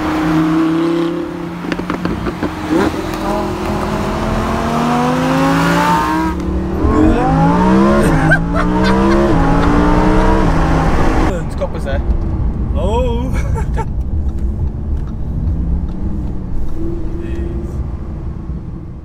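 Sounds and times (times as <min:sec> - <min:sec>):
sports car engine accelerating: 0:00.0 - 0:11.3.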